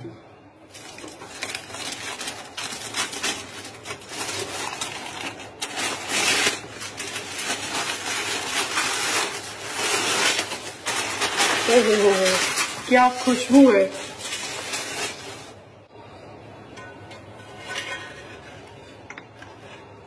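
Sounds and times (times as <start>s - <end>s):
aluminium foil crinkling and tearing: 0.7s - 15.6s.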